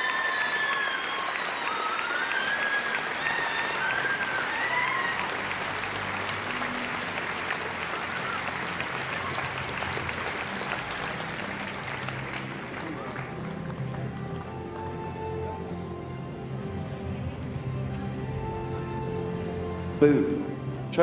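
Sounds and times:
audience applauding: 0.0s - 16.0s
music playing: 0.8s - 21.0s.

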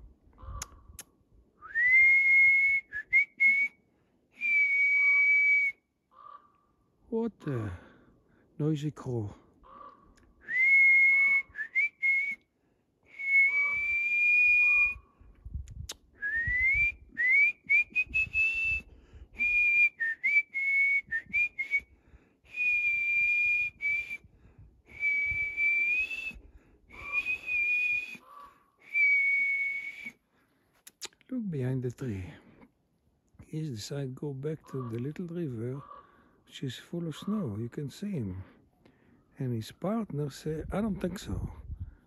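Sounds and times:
man whistling a tune: 1.6s - 3.8s, 4.4s - 5.8s, 10.4s - 12.4s, 13.1s - 15.0s, 16.2s - 21.9s, 22.5s - 24.3s, 24.9s - 28.2s, 28.8s - 30.2s.

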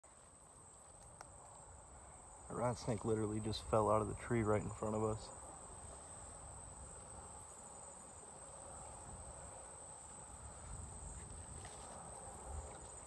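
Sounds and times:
high-pitched insect trill: 5.1s - 13.0s.

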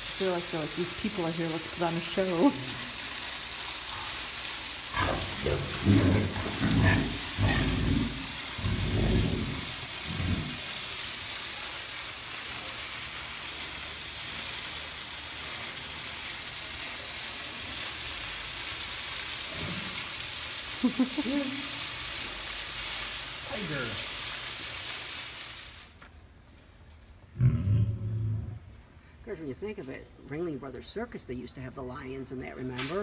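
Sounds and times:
tigers growling and snarling: 4.9s - 10.8s, 19.5s - 20.1s, 27.3s - 28.7s.

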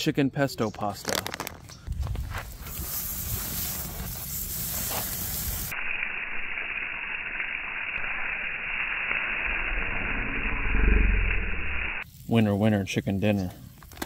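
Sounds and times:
steaks sizzling on a grill: 2.3s - 10.2s, 12.0s - 14.0s.

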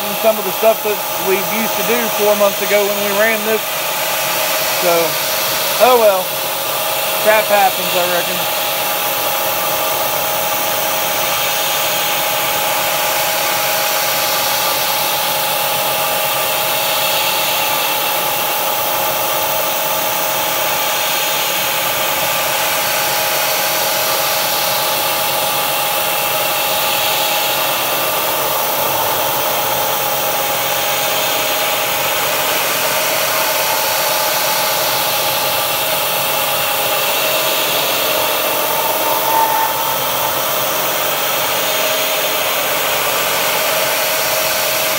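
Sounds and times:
milling machine whine: 0.0s - 44.9s
compressed-air mist sprayer hissing: 26.1s - 43.6s.

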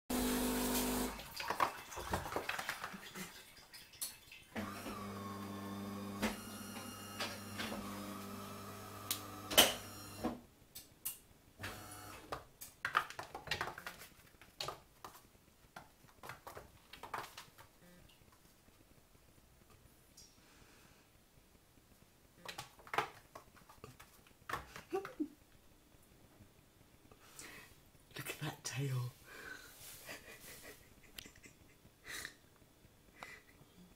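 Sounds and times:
electrical hum: 4.6s - 10.3s.

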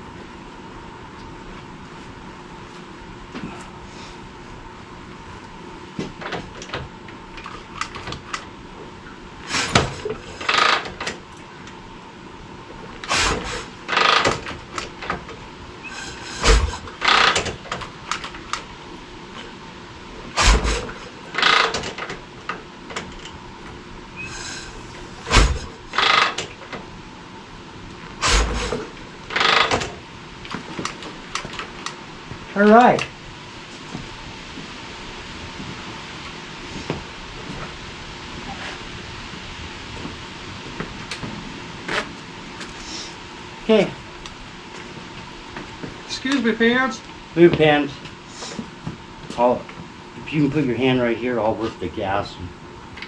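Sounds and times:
motorcycle kick-start thumps and clanks: 6.0s - 8.5s, 9.5s - 11.2s, 13.0s - 18.7s, 20.3s - 23.4s, 24.3s - 26.9s, 28.2s - 31.9s.

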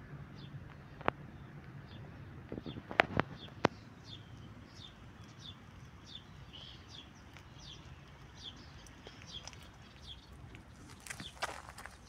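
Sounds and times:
small bird chirping: 2.6s - 12.0s.

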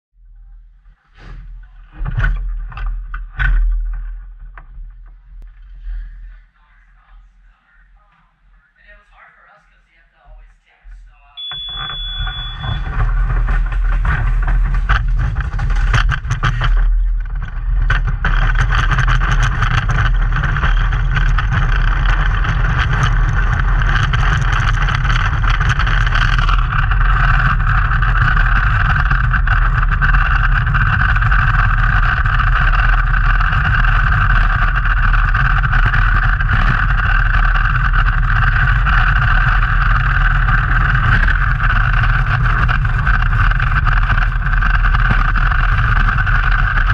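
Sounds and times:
short beep: 11.4s - 12.9s
sled runners rumbling on ice: 11.6s - 46.9s.

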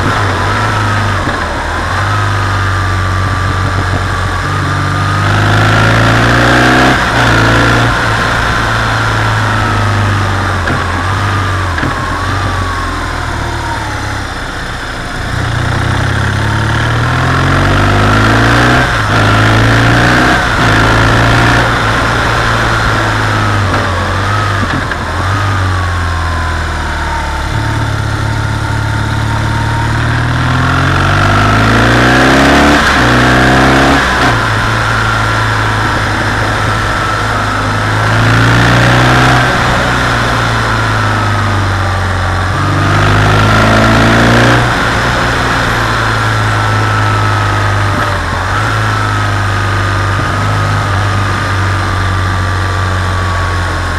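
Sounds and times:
motorcycle engine revving: 0.0s - 53.9s.

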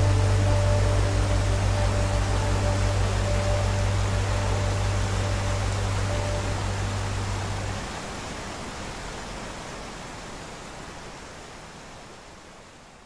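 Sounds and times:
low steady hum: 0.0s - 10.4s
stream rushing over rocks: 0.0s - 13.0s.

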